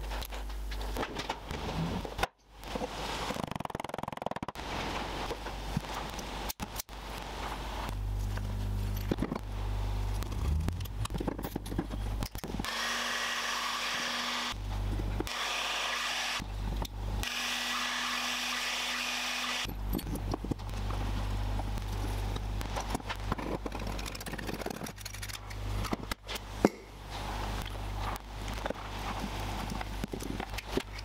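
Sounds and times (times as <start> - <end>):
small electric tool motor: 12.6 - 14.6, 15.2 - 16.4, 17.2 - 19.7.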